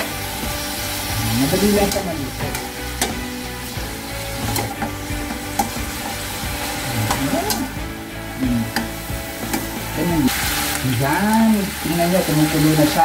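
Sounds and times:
vegetables sizzling in a pan: 0.0s - 13.0s
metal utensil scraping a pan: 1.0s - 7.7s.

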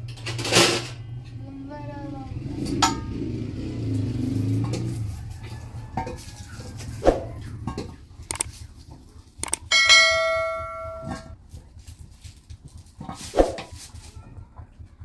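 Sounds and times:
struck metal ringing: 9.6s - 11.4s.

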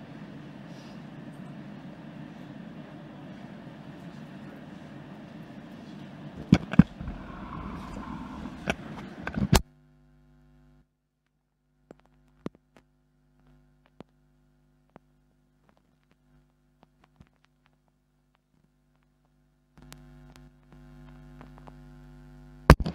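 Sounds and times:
electrical mains hum: 0.0s - 10.8s.

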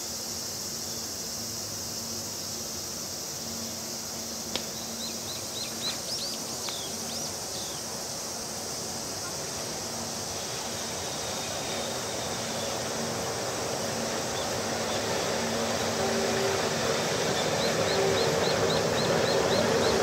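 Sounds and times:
electric locomotive hum: 0.0s - 20.0s
wheels rumbling on rails: 9.2s - 20.0s.

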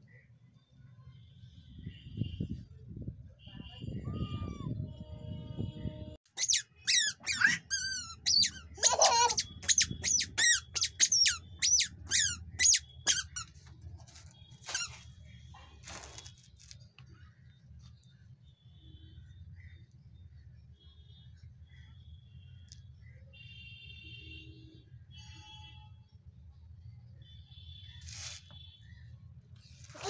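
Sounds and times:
squeaky shoes squeaking: 6.3s - 15.1s.

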